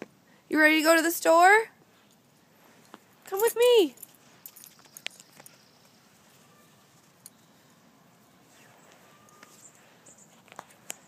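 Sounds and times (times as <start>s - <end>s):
faint distant bird chirps: 4.0s - 11.0s.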